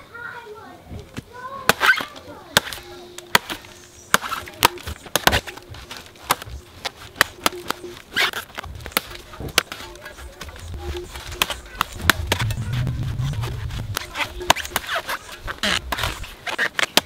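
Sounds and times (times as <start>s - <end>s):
blade chopping into wood: 1.7s - 5.6s, 13.9s - 17.0s.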